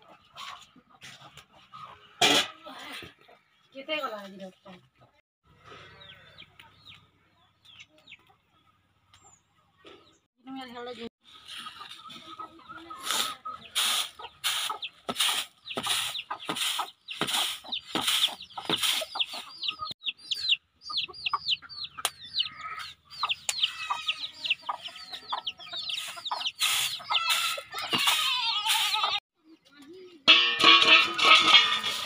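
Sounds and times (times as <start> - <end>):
chickens chirping and clucking: 0.0 - 2.3, 4.9 - 10.3, 11.3 - 30.2
rice swishing in a winnowing tray: 13.0 - 19.0.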